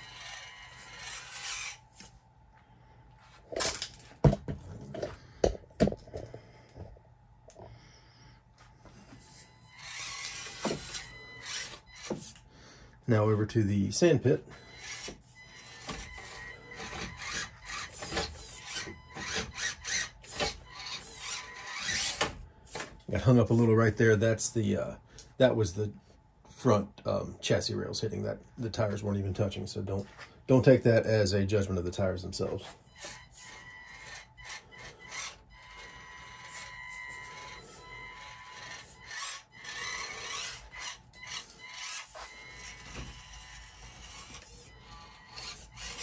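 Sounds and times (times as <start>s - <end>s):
toy car motor whirring: 0.0s - 2.1s, 9.2s - 12.4s, 14.5s - 22.8s, 32.4s - 46.0s.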